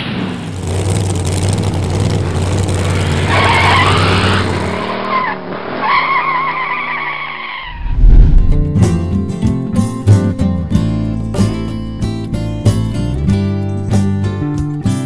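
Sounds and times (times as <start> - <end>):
car engine rumbling: 0.0 - 5.8, 7.6 - 9.4
tires squealing: 2.1 - 8.0
guitar music: 8.3 - 15.0.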